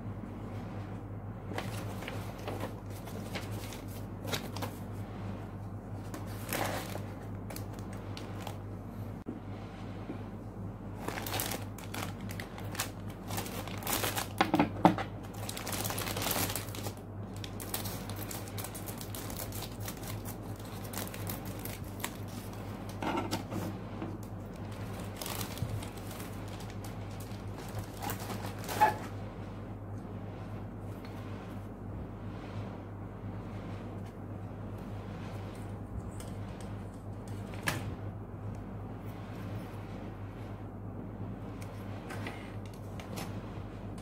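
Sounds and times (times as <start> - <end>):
steady low hum: 0.0 - 44.0
plastic bags crinkling: 6.2 - 8.6, 11.0 - 14.5, 15.1 - 23.0, 24.2 - 29.1.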